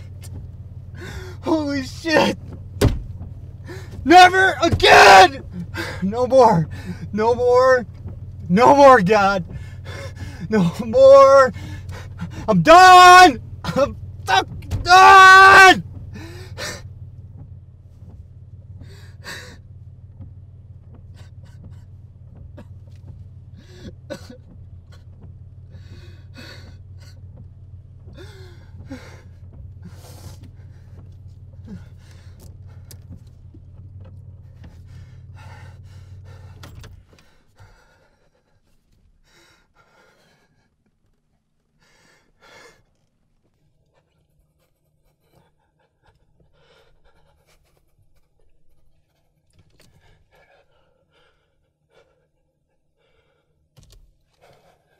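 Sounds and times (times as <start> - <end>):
steady low hum: 0.0 - 54.9
man breathing heavily: 0.9 - 1.4, 3.6 - 4.0, 5.5 - 7.2, 9.5 - 10.6, 11.5 - 12.5, 18.8 - 19.7, 25.7 - 27.2, 28.2 - 33.0, 34.4 - 40.9, 41.7 - 43.1, 44.1 - 54.9.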